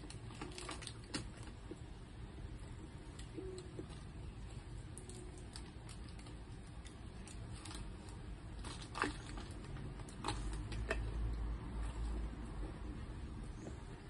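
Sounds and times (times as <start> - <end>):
plastic bag and paper rustling: 0.0 - 11.1.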